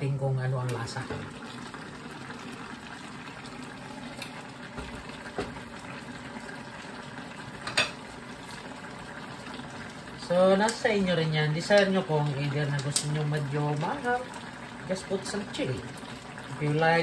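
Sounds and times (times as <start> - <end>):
broth bubbling in a pan: 0.0 - 17.0.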